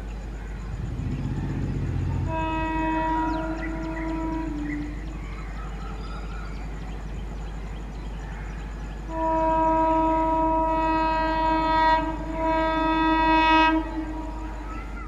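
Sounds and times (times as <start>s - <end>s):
locomotive rumble: 0.0s - 15.0s
train horn blast: 2.2s - 5.1s, 9.0s - 14.9s.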